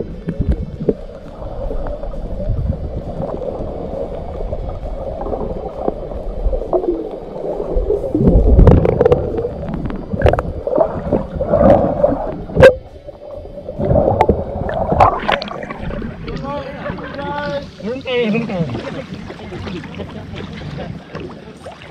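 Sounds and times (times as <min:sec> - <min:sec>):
bubbling: 0:00.0 - 0:21.9
low churning underwater noise: 0:00.0 - 0:21.9
water splashing: 0:00.0 - 0:21.9
sharp underwater clicks: 0:13.8 - 0:16.5.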